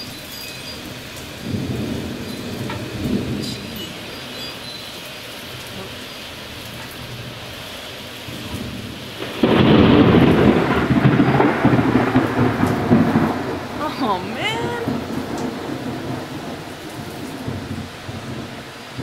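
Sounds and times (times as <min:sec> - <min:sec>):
heavy rain: 0:00.0 - 0:19.0
thunder rumbling: 0:00.0 - 0:19.0.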